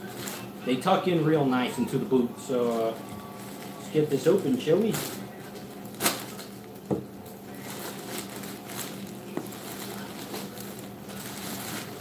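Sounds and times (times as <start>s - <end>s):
plastic packaging crinkling: 2.5s - 12.0s.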